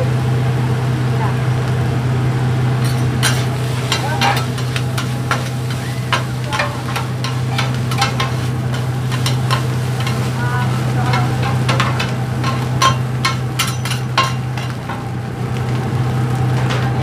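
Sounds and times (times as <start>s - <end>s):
rice sizzling on griddle: 0.0s - 17.0s
low hum: 2.0s - 17.0s
metal spatulas scraping griddle: 2.8s - 15.1s, 16.5s - 17.0s.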